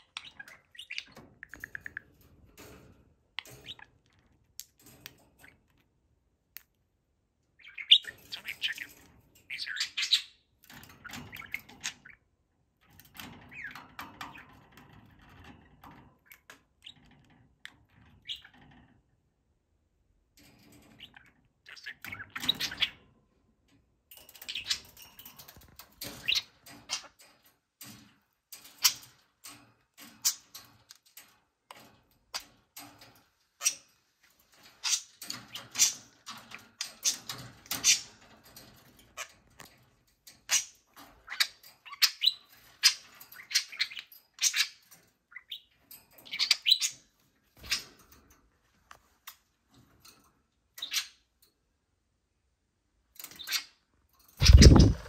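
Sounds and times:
budgerigars chattering: 0:54.4 - 0:55.0.

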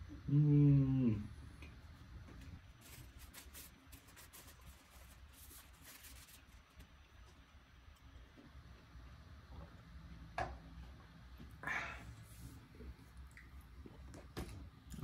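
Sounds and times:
low room hum: 0:00.0 - 0:15.0
faint scratchy rustling: 0:02.6 - 0:07.5.

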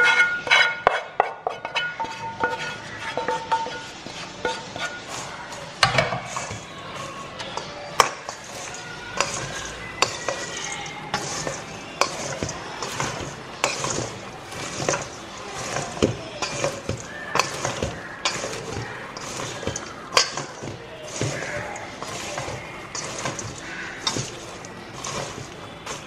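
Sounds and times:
popcorn rustling: 0:00.0 - 0:26.0
tongs scraping a metal bowl: 0:00.0 - 0:26.0.

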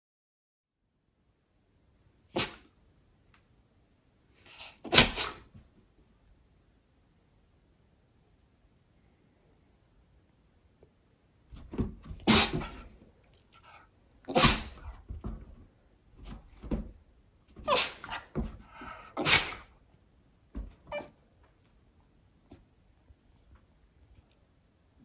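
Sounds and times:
dog sneezing: 0:02.3 - 0:02.7, 0:04.5 - 0:05.5, 0:12.2 - 0:12.8, 0:14.3 - 0:15.0, 0:17.6 - 0:18.4, 0:19.2 - 0:19.7.

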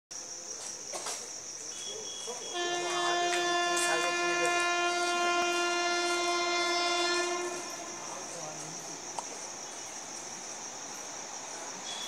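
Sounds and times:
crickets chirping: 0:00.1 - 0:12.0
locomotive air horn blast: 0:02.5 - 0:08.5.

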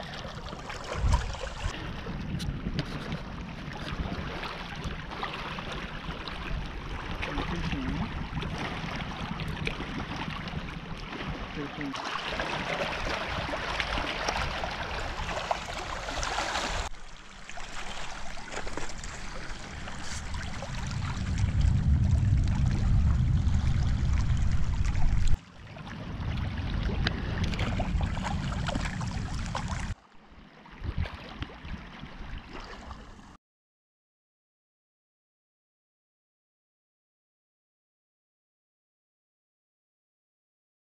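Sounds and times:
shallow water splashing: 0:00.0 - 0:02.0, 0:03.0 - 0:33.4
low rumble on microphone: 0:19.0 - 0:30.0.

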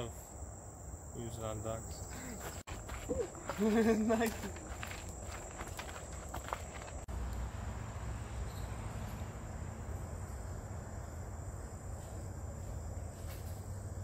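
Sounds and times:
insects trilling: 0:00.0 - 0:07.1.

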